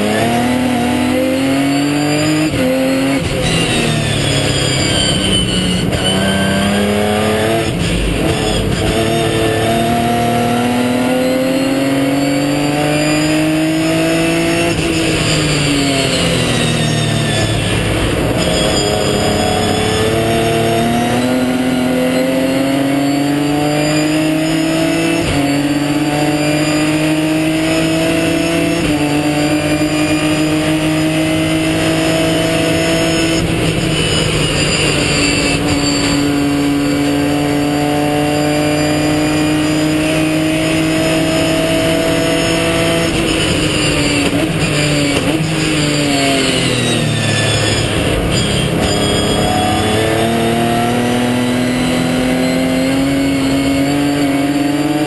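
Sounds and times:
race car engine accelerating: 0.0s - 55.0s.

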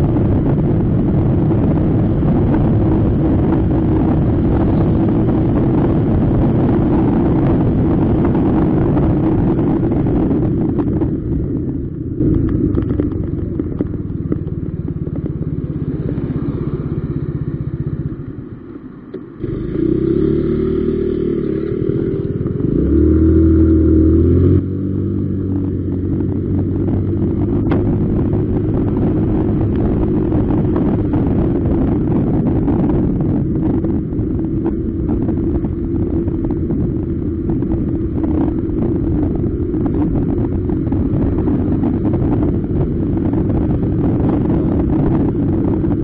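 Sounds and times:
motor scooter engine running: 0.0s - 46.0s.

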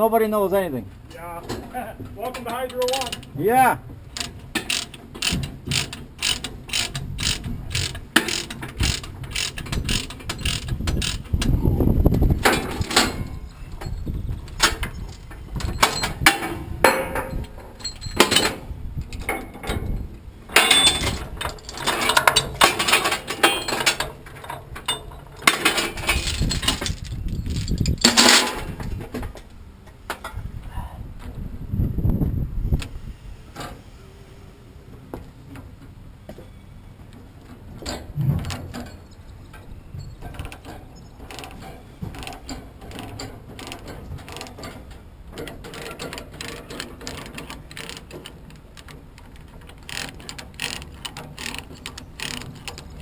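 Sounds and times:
steel chains clanking: 2.2s - 3.4s, 4.1s - 11.5s, 12.4s - 18.6s, 19.2s - 29.0s, 37.8s - 53.0s
rapid regular clicks: 4.1s - 11.6s, 41.2s - 53.0s.

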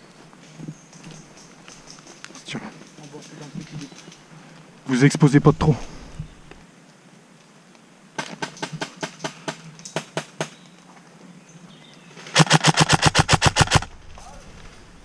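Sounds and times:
airsoft rifle shots: 12.4s - 13.9s.

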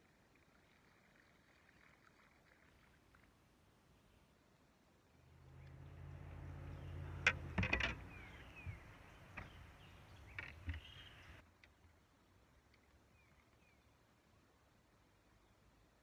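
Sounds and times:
loud clicks and knocks: 7.0s - 9.7s.

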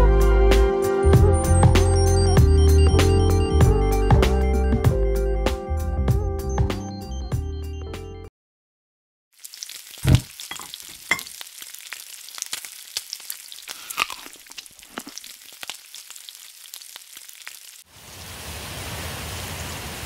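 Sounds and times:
food sizzling in frying pan: 9.3s - 19.6s.

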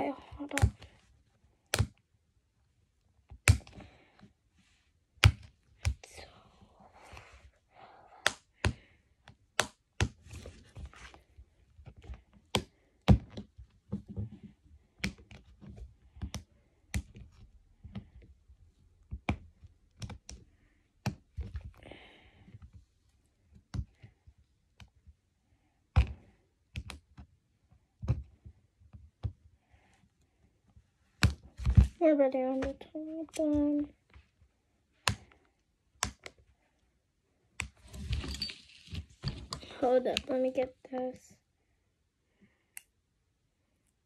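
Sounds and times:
fingers tapping plastic toy egg: 0.3s - 0.9s, 1.6s - 2.0s, 8.2s - 10.2s, 35.0s - 36.4s.

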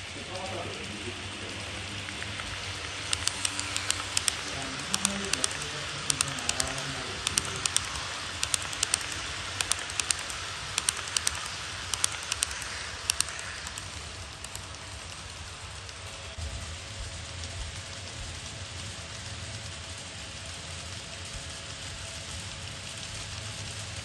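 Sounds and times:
model train wheels clicking: 0.0s - 24.0s
train rolling hiss: 0.0s - 24.0s.

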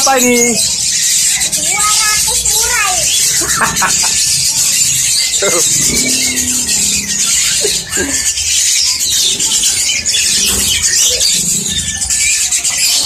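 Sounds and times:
caged birds chirping: 0.0s - 13.0s.

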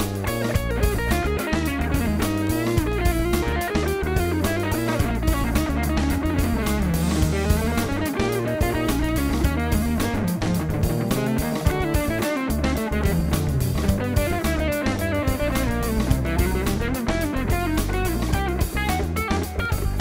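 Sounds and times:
bass: 0.0s - 20.0s
drums: 0.0s - 20.0s
electric guitar improvising: 0.0s - 20.0s.

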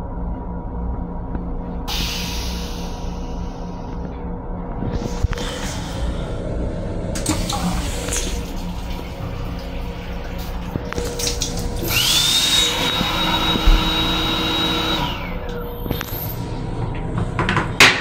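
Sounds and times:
low steady hum: 0.0s - 18.0s
electric motor whining: 11.8s - 16.1s.

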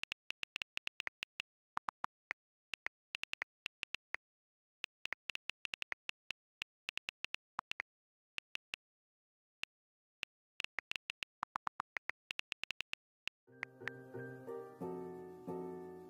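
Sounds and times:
phone keyboard clicks: 0.0s - 4.2s, 10.1s - 14.0s.

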